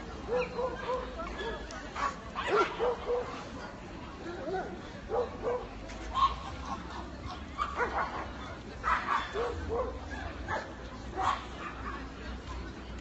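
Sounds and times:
dogs yipping and barking: 0.3s - 3.3s.

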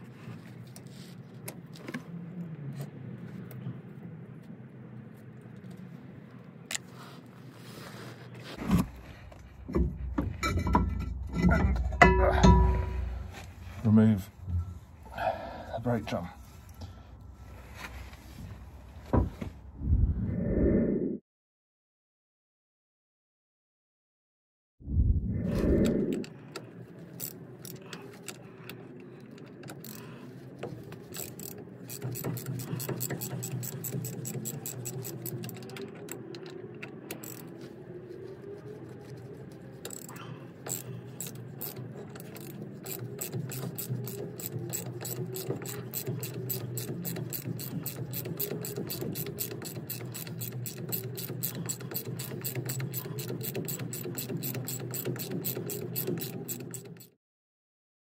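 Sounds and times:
socket ratchet clicking: 31.0s - 37.5s, 39.9s - 57.1s.

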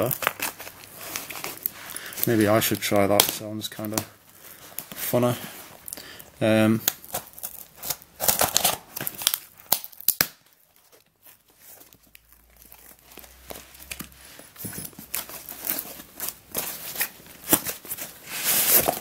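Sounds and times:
packing tape ripping: 0.0s - 4.1s, 6.8s - 10.6s, 15.0s - 19.0s.

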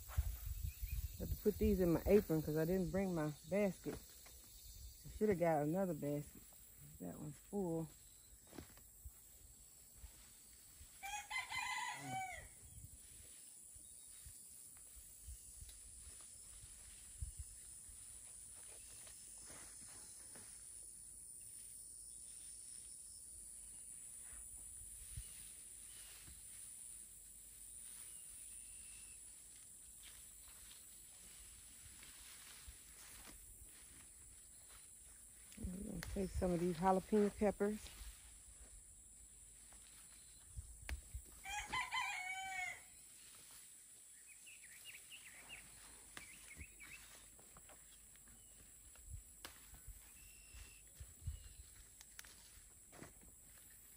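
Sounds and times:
footsteps in garden: 0.0s - 53.9s
rustling of plants: 1.4s - 22.8s, 23.8s - 53.9s
rooster crowing: 11.0s - 12.6s, 41.4s - 42.9s.

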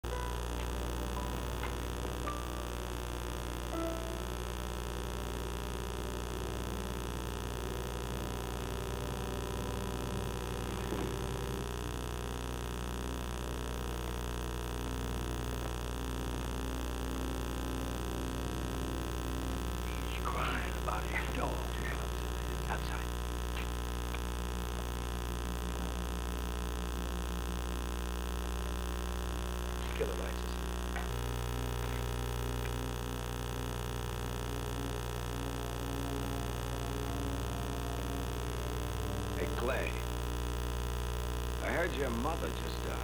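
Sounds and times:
background hiss: 0.0s - 43.0s
electrical mains hum: 0.0s - 43.0s.

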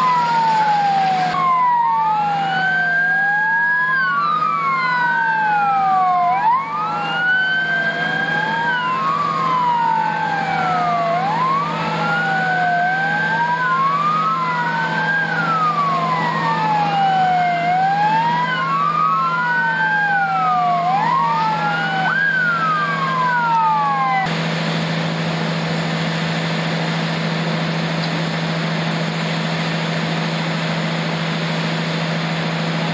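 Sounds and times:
emergency vehicle sirens wailing: 0.0s - 32.9s.

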